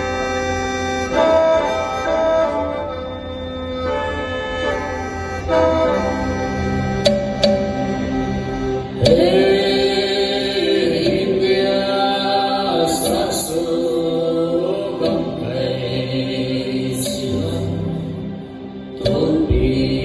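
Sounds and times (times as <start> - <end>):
traditional dance music: 0.0 - 14.0
group chanting voices: 4.7 - 20.0.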